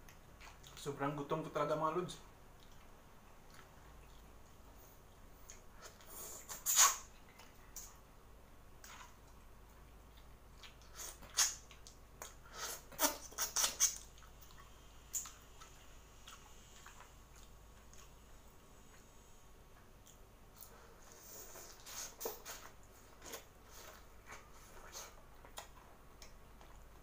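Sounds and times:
wet sucking and smacking mouth noises: 0:05.4 - 0:08.0, 0:10.0 - 0:19.1, 0:19.8 - 0:26.8.

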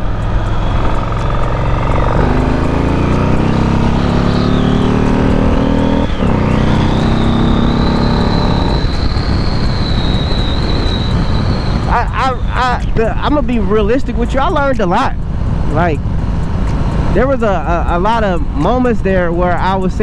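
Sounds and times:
motorcycle engine accelerating: 0:00.0 - 0:18.7
wind noise: 0:05.3 - 0:20.0.

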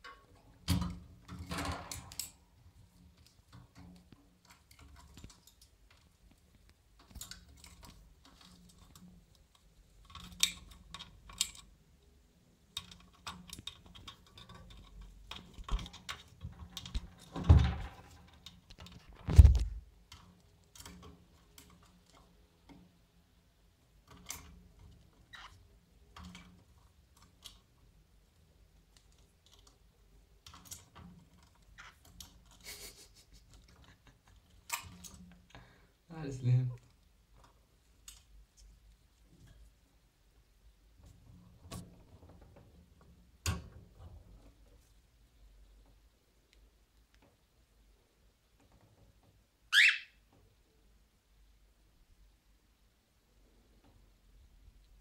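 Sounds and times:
wire birdcage rattling: 0:12.7 - 0:22.8.

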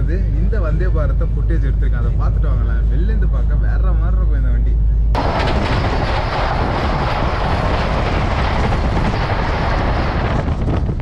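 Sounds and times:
train rushing past: 0:05.2 - 0:10.6.

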